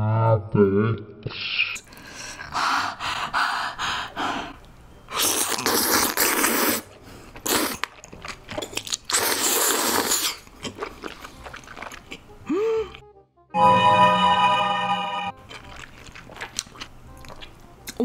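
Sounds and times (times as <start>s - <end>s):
noodles slurping: 5.1s - 12.4s, 15.4s - 18.0s
soft chewing clicks: 15.5s - 18.0s.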